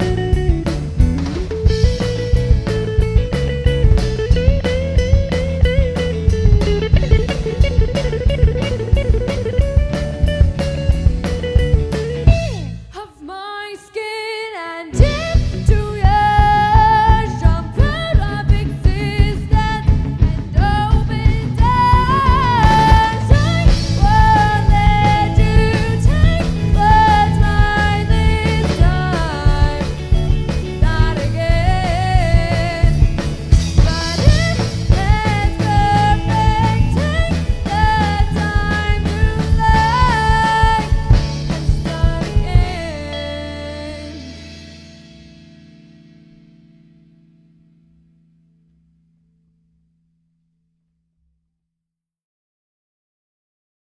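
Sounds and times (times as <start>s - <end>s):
sliding lead melody: 0.0s - 13.0s, 14.9s - 47.9s
drum kit: 0.0s - 13.1s, 14.9s - 46.4s
pop band playing live: 0.0s - 13.2s, 14.9s - 46.4s
bass: 0.0s - 13.9s, 14.8s - 50.8s
person singing: 12.8s - 44.8s.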